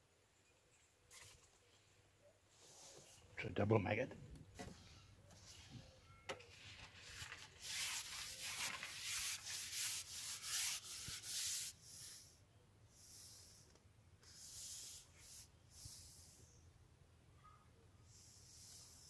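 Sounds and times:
fishing pole rubbing against sleeve: 7.6s - 12.3s.

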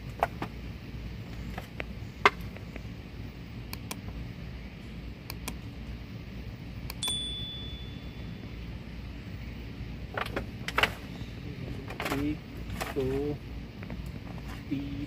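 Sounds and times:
low background noise: 0.0s - 15.0s
bell ding: 7.0s - 8.4s.

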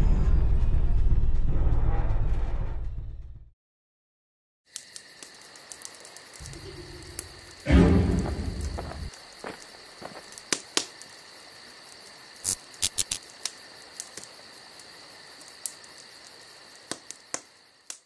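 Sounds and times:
crickets chirping: 4.7s - 18.0s
deep boom: 6.4s - 9.1s.

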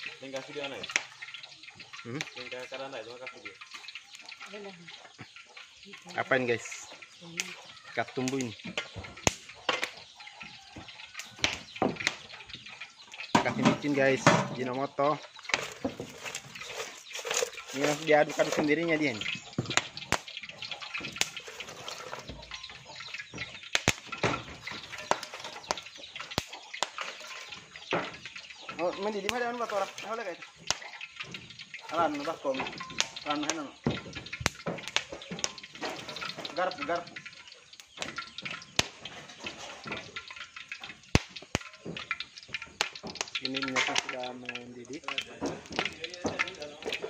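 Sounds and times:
knocks against metal pot: 6.9s - 47.0s
fish flapping and slapping wetly: 15.2s - 47.0s.

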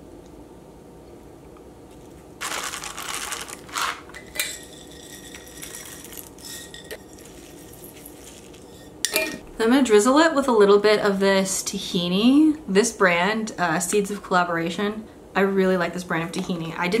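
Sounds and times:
seeds rattling out of jar: 2.4s - 8.9s
jar and lid clinking: 3.7s - 9.4s.

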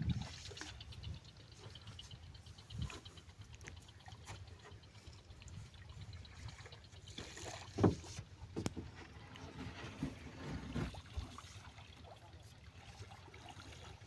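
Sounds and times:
wind rumbling on microphone: 0.0s - 3.2s.

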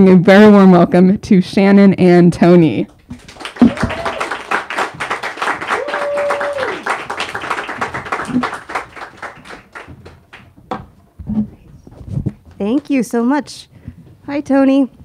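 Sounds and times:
audience applauding: 3.1s - 10.5s.

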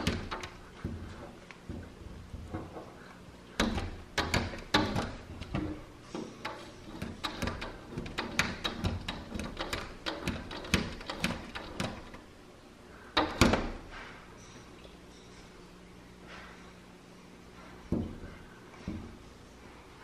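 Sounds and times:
dog tapping on glass: 3.6s - 5.8s, 6.4s - 12.2s.

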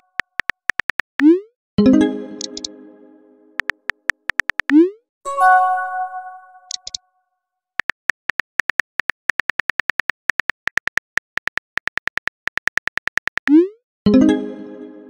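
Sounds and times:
smartphone keyboard taps: 0.2s - 1.2s, 3.6s - 4.7s, 7.8s - 13.5s
ringing chime: 5.3s - 6.7s.

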